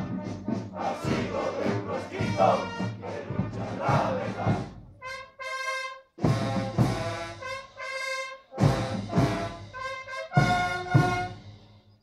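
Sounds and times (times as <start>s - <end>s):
heavy drum beats: 0.0s - 4.9s, 6.2s - 7.5s, 8.6s - 11.4s
brass band playing march: 0.0s - 11.8s.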